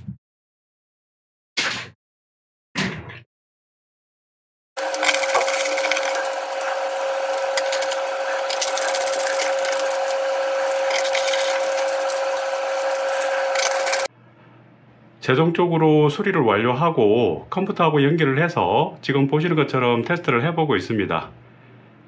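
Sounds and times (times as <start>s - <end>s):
electric screwdriver whining: 4.8s - 14.1s
screws scraping and clicking: 4.8s - 14.1s.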